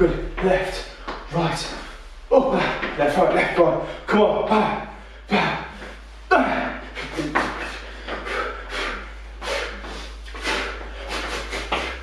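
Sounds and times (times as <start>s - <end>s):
hissing exhalations: 6.9s - 12.0s.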